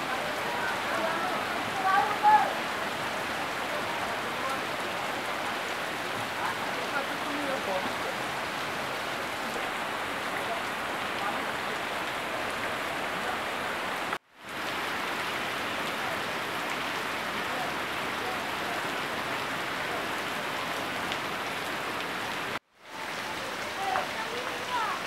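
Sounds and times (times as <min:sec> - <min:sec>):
heavy rain splashing: 0:00.0 - 0:25.0
water pouring off roof: 0:00.0 - 0:25.0.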